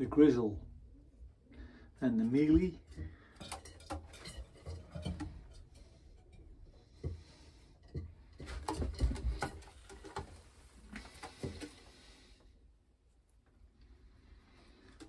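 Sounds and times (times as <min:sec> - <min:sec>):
light taps and rustles: 0:06.8 - 0:12.0.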